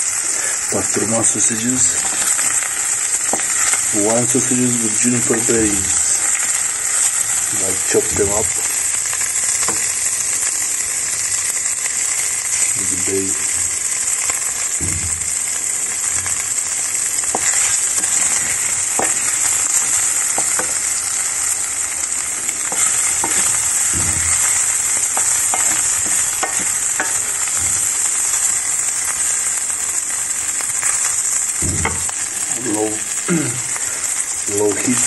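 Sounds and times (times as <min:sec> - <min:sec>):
sausages sizzling in frying pan: 0:00.0 - 0:35.0
fat popping: 0:02.0 - 0:04.4, 0:08.1 - 0:10.5, 0:13.5 - 0:28.6, 0:30.9 - 0:34.0
wooden spatula stirring: 0:02.0 - 0:10.0, 0:14.2 - 0:28.1.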